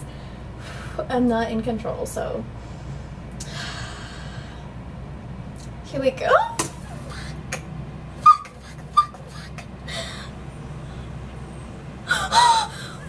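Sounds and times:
low steady hum: 0.0s - 13.0s
woman squealing: 8.2s - 10.2s, 12.1s - 13.0s.

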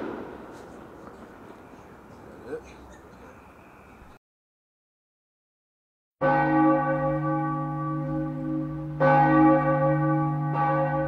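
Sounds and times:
large bell tolling: 6.2s - 11.0s.

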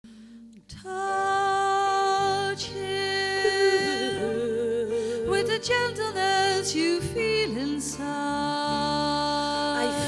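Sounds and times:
choir singing wordless chords: 0.9s - 6.8s
voice singing with vibrato: 3.4s - 5.6s.

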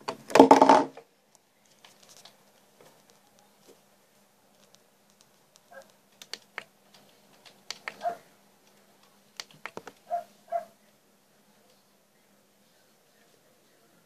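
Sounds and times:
laptop clicks and taps: 4.6s - 8.1s, 9.4s - 10.0s.

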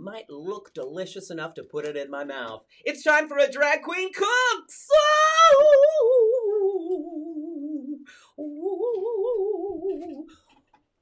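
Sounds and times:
person singing with vibrato: 4.3s - 10.4s.

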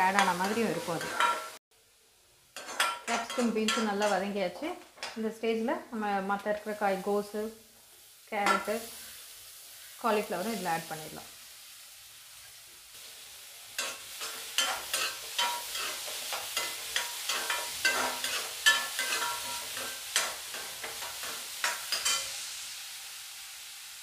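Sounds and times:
vegetables sizzling in oil: 0.0s - 24.0s
metal spoon scraping a pan: 0.1s - 1.6s, 2.6s - 4.3s, 13.8s - 22.4s.

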